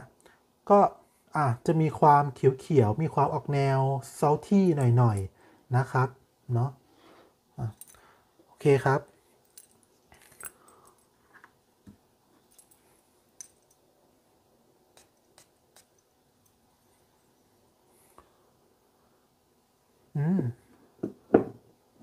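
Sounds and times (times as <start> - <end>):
man humming: 20.1 - 20.7.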